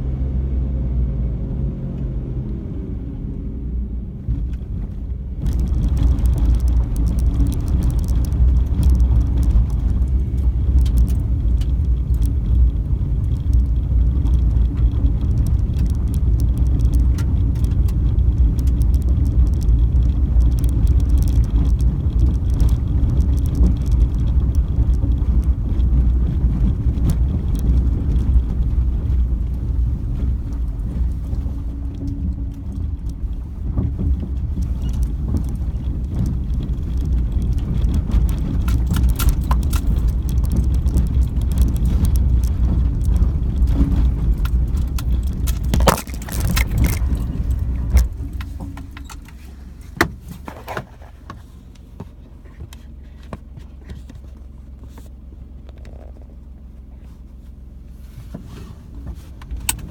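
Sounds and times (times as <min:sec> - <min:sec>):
car engine and tyres rumbling: 0:00.0 - 0:59.9
clicks and knocks over bumps: 0:04.2 - 0:59.9.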